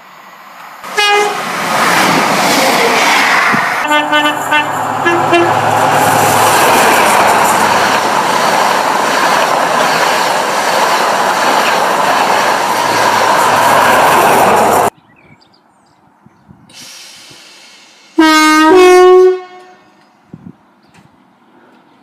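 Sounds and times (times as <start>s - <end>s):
train rushing past: 0.0s - 15.0s
two-note train horn blasts: 0.9s - 1.4s, 3.8s - 5.6s, 18.2s - 20.1s.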